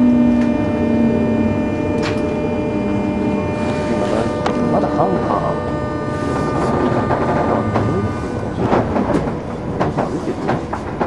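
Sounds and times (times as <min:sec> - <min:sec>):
electric train running: 0:00.0 - 0:11.0
wheels clicking over rail joints: 0:07.0 - 0:11.0.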